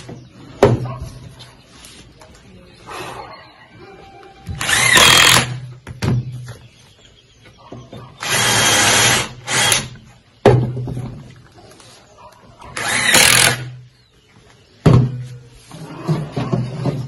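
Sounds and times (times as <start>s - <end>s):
cordless drill running: 4.6s - 5.6s, 8.2s - 9.9s, 12.8s - 13.7s.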